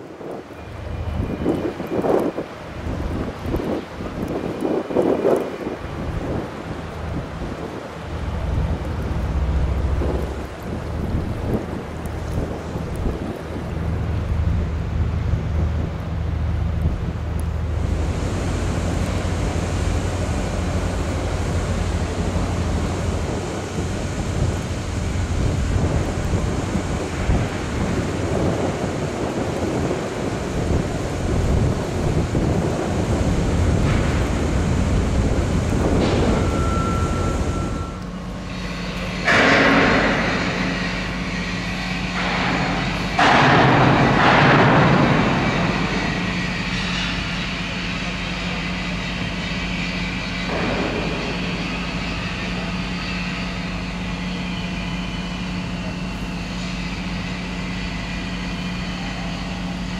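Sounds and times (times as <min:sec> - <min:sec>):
wind blowing across microphone: 0:00.0 - 0:49.4
low machine hum: 0:00.0 - 0:59.9
loud rushing hisses: 0:17.6 - 0:37.8.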